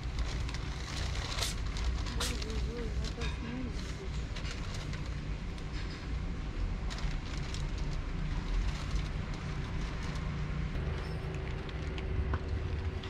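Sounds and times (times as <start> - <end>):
cat crunching dry kibble: 0.0 - 3.3
low city street rumble: 0.0 - 13.0.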